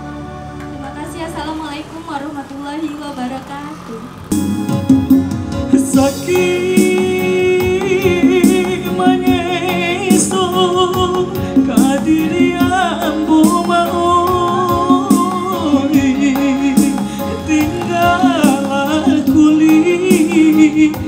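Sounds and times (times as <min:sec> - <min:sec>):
backing track music: 0:00.0 - 0:02.2, 0:04.3 - 0:21.0
man singing with vibrato: 0:05.6 - 0:21.0.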